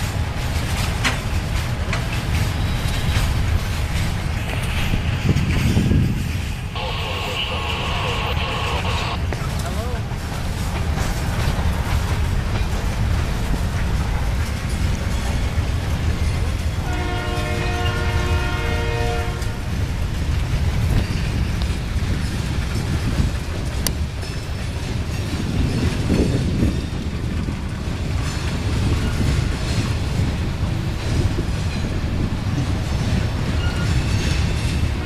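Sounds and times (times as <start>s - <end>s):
freight train wheels rumbling: 0.0s - 35.0s
train horn chord: 6.8s - 9.2s, 16.9s - 19.6s.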